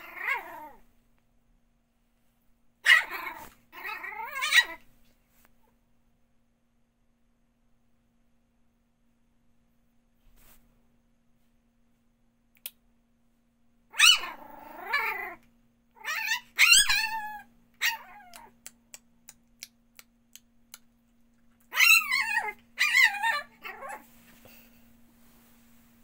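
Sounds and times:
puppy yapping: 0:02.8 - 0:04.8, 0:13.9 - 0:15.4, 0:16.0 - 0:18.6, 0:21.7 - 0:24.1.

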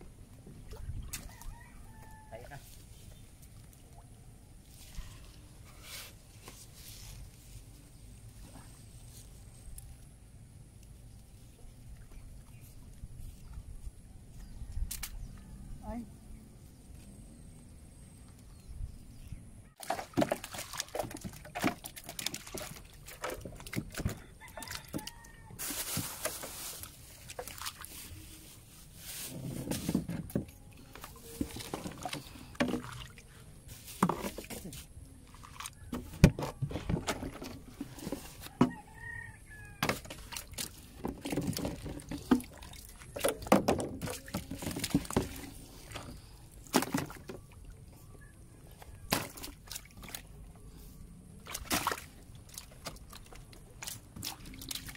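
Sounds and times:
knocks and splashes: 0:00.4 - 0:01.6, 0:19.7 - 0:28.2, 0:29.1 - 0:48.1, 0:48.7 - 0:50.4, 0:51.4 - 0:54.9
fish flopping and slapping in water: 0:19.7 - 0:50.5, 0:51.4 - 0:54.9.

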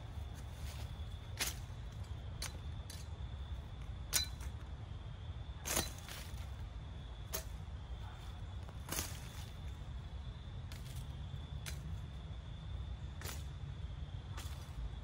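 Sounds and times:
sickle swiping through weeds: 0:08.8 - 0:09.7.

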